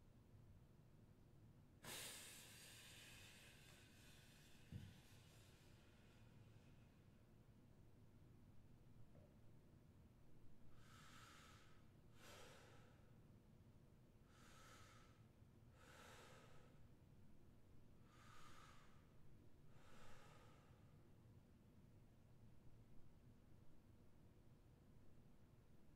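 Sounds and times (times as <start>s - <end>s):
faint slow breathing: 1.8s - 7.6s, 10.5s - 13.3s, 14.2s - 17.1s, 18.0s - 21.2s.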